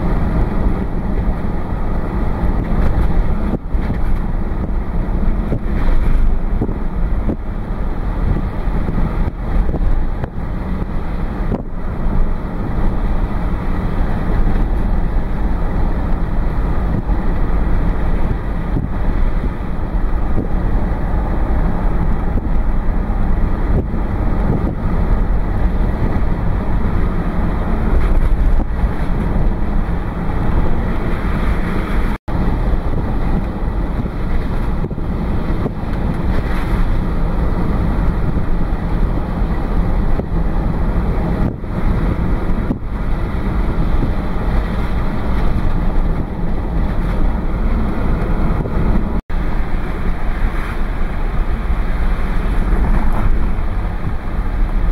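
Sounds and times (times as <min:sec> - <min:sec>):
road and wind noise in car: 0:00.0 - 0:54.9.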